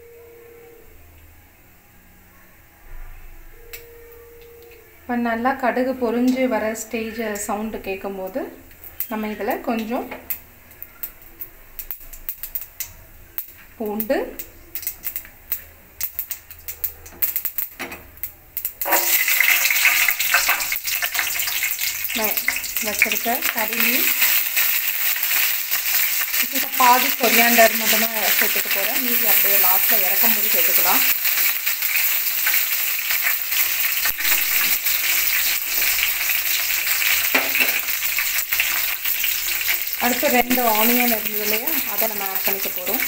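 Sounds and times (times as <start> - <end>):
garlic sizzling in oil: 5.3 - 43.0
seeds popping in hot oil: 6.2 - 43.0.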